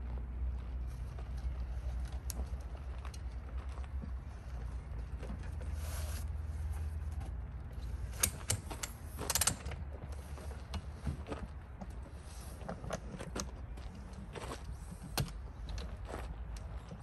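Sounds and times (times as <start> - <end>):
metal ladder sections clicking: 7.8 - 9.8.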